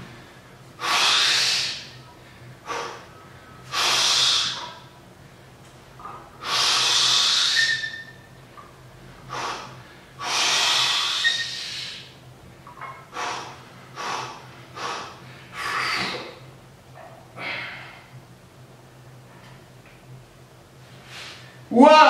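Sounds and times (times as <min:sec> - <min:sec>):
man breathing heavily: 0:09.2 - 0:12.2, 0:13.1 - 0:16.4, 0:17.3 - 0:18.2.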